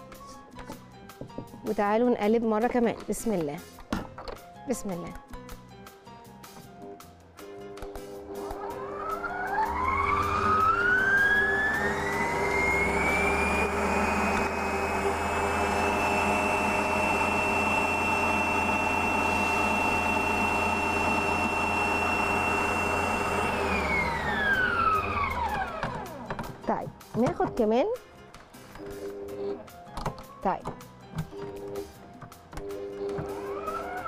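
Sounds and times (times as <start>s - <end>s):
electric stand mixer whining: 8.0s - 26.6s, 32.6s - 34.0s.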